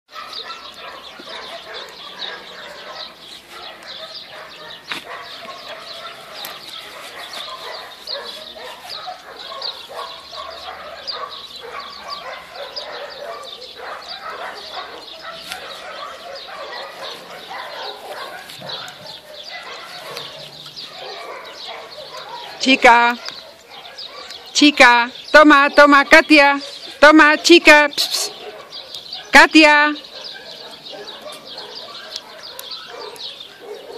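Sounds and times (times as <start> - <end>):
animal chirps and yaps: 30.0 - 33.9.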